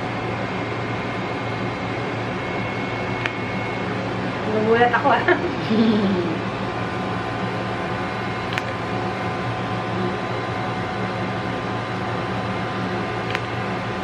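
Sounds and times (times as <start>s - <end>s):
device fan hum: 0.0s - 14.0s
device sharp clicks: 8.5s - 8.8s.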